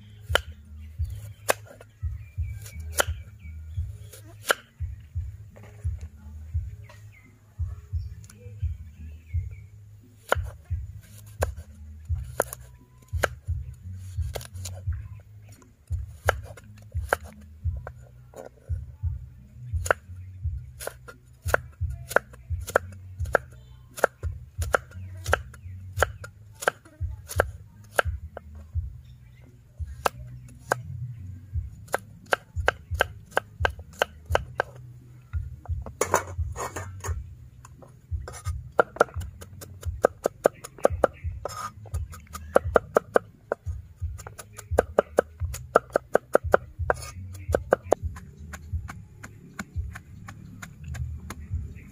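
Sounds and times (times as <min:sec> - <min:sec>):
cleaver chopping on wooden block: 0:00.3 - 0:01.8, 0:02.6 - 0:03.2, 0:04.2 - 0:04.7, 0:12.2 - 0:13.4, 0:16.0 - 0:18.0, 0:20.8 - 0:28.4, 0:31.9 - 0:34.8, 0:38.2 - 0:51.7.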